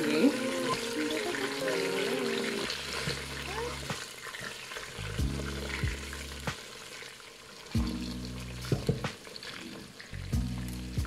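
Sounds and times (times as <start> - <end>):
background music: 0.0 - 4.0, 5.0 - 6.6, 7.8 - 9.2, 10.2 - 11.0
meat sizzling in oil: 0.0 - 11.0.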